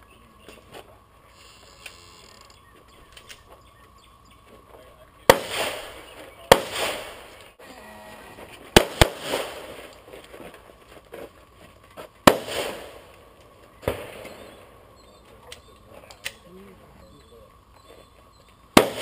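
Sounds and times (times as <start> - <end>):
pistol shots with echo: 5.2 - 7.3, 8.8 - 9.8, 12.2 - 13.1, 18.7 - 19.0.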